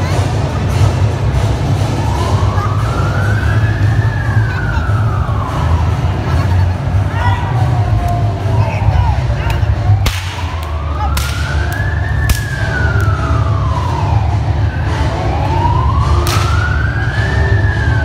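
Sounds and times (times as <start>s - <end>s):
siren wailing: 1.8s - 6.3s, 9.7s - 18.0s
sharp cracks: 10.0s - 13.2s, 16.2s - 16.7s.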